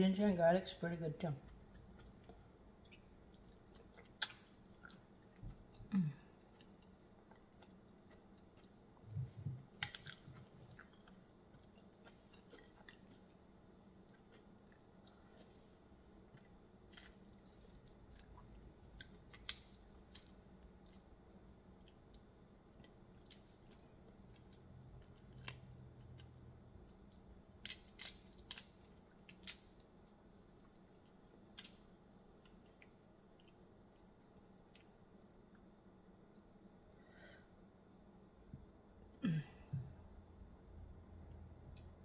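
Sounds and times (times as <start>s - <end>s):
chewing: 1.4s - 13.4s, 14.0s - 21.1s
shrimp shells cracking: 27.6s - 29.8s.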